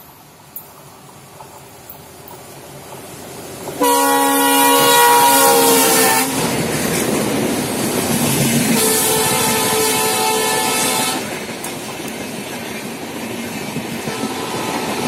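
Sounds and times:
train rumbling and clattering past: 0.0s - 15.0s
diesel locomotive horn: 3.8s - 6.5s, 8.7s - 11.4s, 14.1s - 15.0s.

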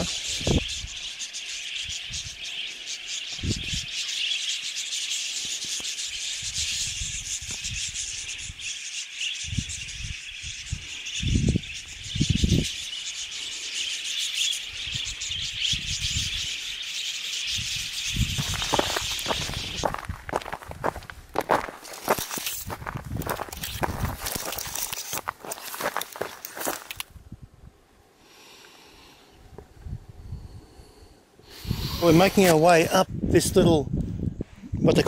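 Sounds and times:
high-pitched hiss: 28.1s - 33.0s.

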